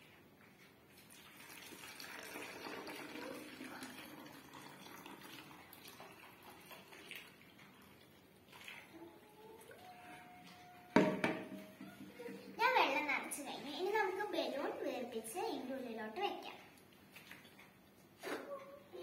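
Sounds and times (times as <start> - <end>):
water pouring into plastic bottle: 0.9 - 9.0.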